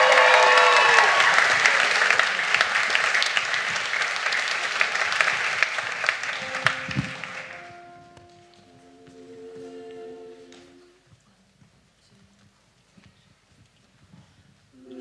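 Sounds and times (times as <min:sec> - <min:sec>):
audience applauding: 0:00.0 - 0:08.8
soft held notes: 0:06.3 - 0:11.4.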